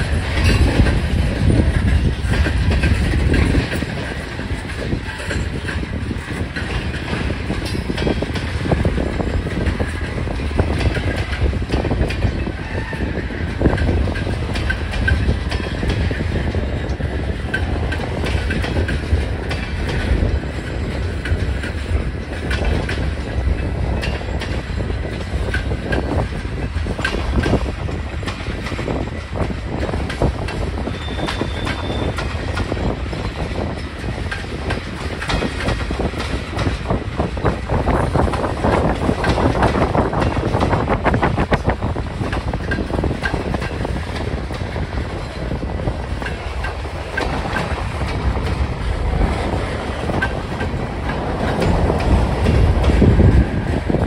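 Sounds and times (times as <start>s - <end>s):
rumble of train wheels: 0.0s - 54.0s
wheels clickety-clack on rail joints: 0.0s - 54.0s
wind rumble on microphone: 0.0s - 54.0s
high squeal: 30.9s - 32.2s.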